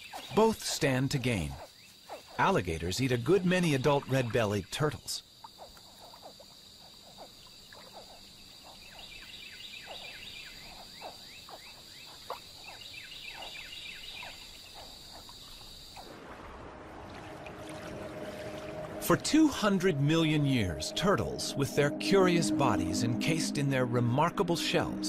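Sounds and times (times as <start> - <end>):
frog calls: 0.0 - 16.1
insect trill: 0.0 - 16.3.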